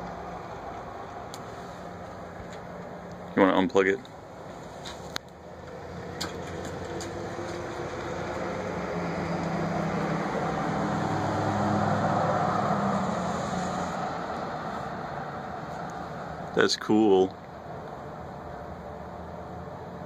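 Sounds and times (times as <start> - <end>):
vehicle passing by: 4.5 - 20.0.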